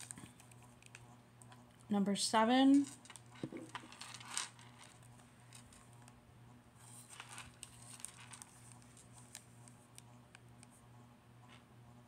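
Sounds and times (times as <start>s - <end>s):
steady low hum: 0.0s - 12.0s
plastic bags rustling: 6.9s - 9.4s.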